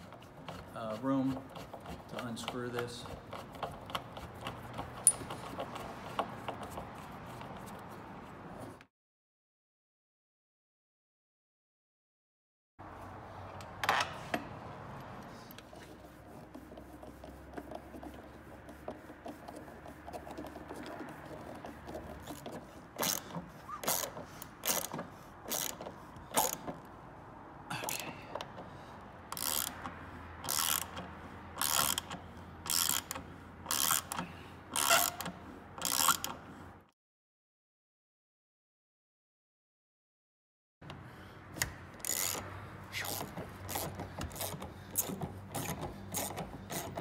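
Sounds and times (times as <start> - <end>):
handling of tools: 0.0 - 8.8, 13.0 - 27.0, 27.7 - 36.7, 40.8 - 47.0
ratchet pawl clicking: 16.6 - 26.9, 29.3 - 36.4, 41.6 - 47.0.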